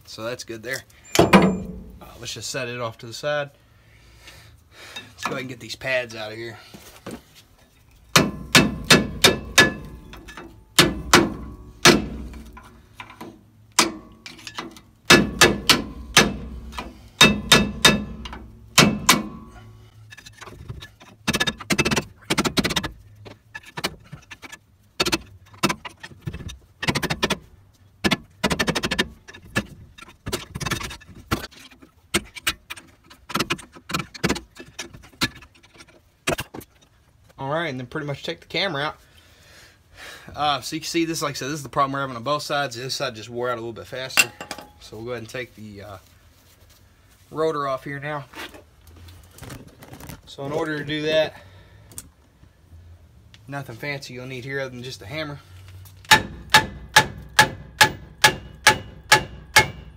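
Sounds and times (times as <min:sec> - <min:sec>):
hammer striking metal: 0:01.1 - 0:02.1, 0:08.1 - 0:12.6, 0:13.8 - 0:19.7, 0:56.1 - 0:59.9.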